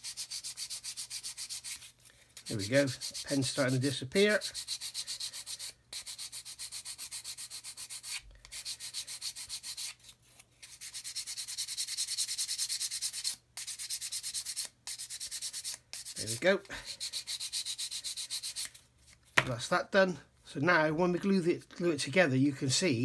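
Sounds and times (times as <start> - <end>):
plastic sanded on sanding stick: 0.0 - 10.0, 10.6 - 18.8.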